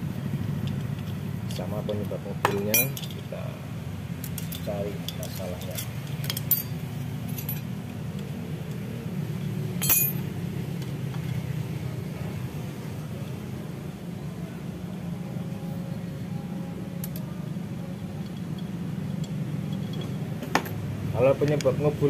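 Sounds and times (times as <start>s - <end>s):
steady low hum: 0.0s - 22.0s
metal clinks from hand tools: 2.5s - 3.2s, 9.8s - 10.3s
chain rattling: 2.6s - 3.2s, 4.4s - 7.8s, 9.8s - 10.3s, 18.3s - 20.8s.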